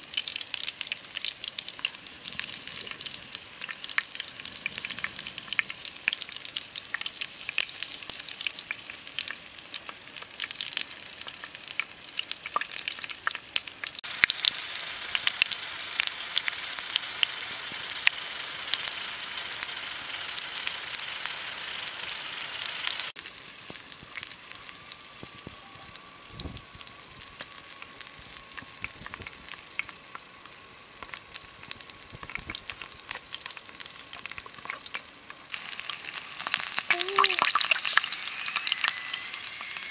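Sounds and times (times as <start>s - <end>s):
frying sizzle with crackling pops: 0.0s - 39.9s.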